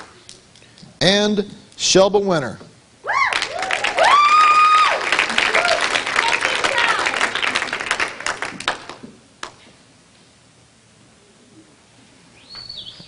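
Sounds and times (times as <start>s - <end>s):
audience applause: 3.3s - 9.6s.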